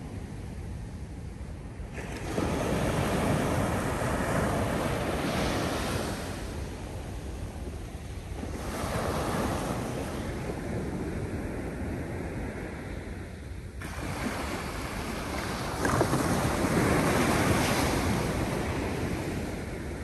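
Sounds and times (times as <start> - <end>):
surf waves breaking on beach: 1.8 - 20.0.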